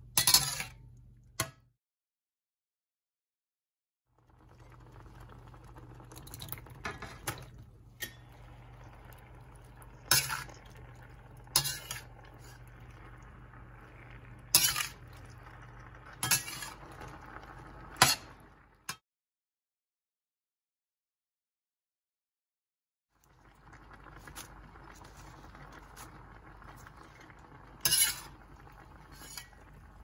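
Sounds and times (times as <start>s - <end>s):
metal utensils clanking on skillet: 0.2s - 0.7s, 11.6s - 12.1s, 14.5s - 15.0s, 16.2s - 16.9s, 27.8s - 28.3s.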